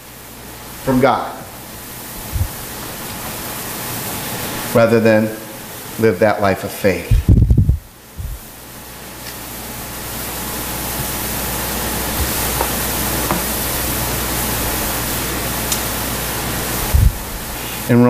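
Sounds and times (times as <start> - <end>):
room noise hiss: 0.0 - 18.0
low hum: 2.2 - 2.8, 7.1 - 8.5, 16.6 - 17.6.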